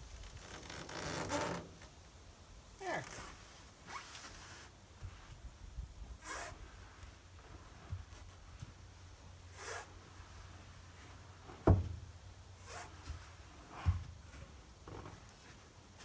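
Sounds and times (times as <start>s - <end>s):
canoe scraping: 9.4s - 11.8s.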